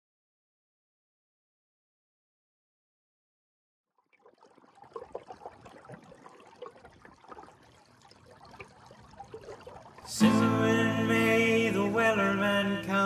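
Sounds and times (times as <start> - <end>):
water lapping along a hull: 4.0 - 10.8.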